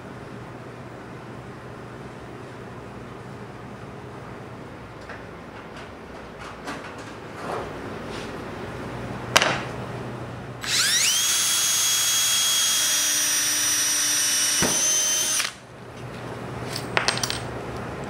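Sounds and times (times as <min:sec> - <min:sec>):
cordless drill drilling aluminum: 0:10.6 - 0:15.6.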